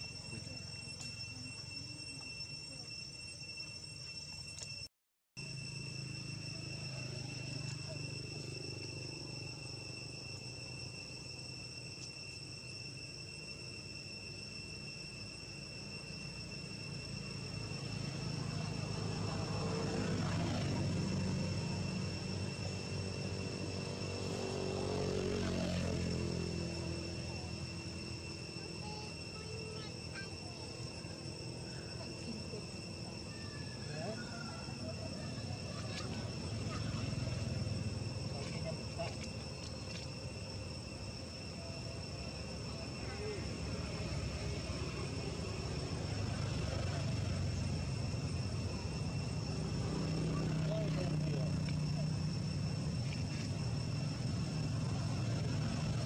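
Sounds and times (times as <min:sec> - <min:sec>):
high-pitched insect whine: 0:00.0 - 0:56.0
low engine drone: 0:13.8 - 0:56.0.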